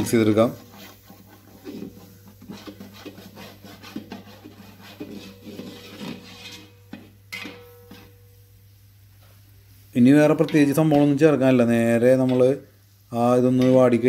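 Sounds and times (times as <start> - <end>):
metal spatula scraping pot: 0.0 - 8.3, 10.2 - 12.6.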